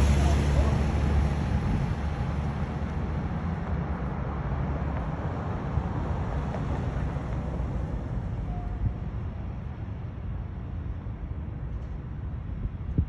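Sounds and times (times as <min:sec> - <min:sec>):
wind buffeting microphone: 0:00.0 - 0:04.0, 0:11.4 - 0:13.0
outdoor noise: 0:00.0 - 0:13.0.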